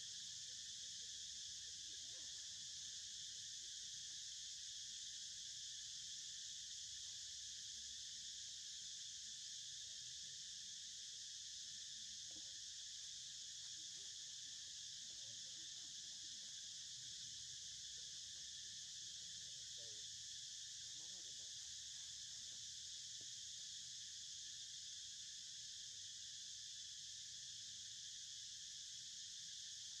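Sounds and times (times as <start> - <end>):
high-pitched insect chorus: 0.0 - 30.0.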